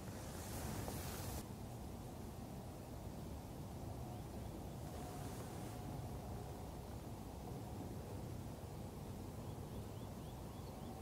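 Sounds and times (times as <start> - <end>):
thin hiss: 0.0 - 1.4.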